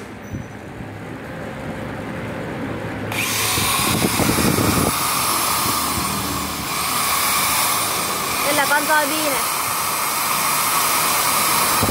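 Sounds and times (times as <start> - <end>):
electric drill motor whining: 3.1 - 11.9.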